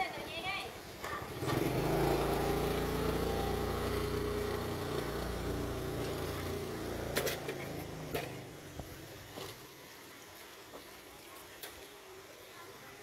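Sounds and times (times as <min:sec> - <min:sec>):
motor engine running: 0:01.3 - 0:08.5.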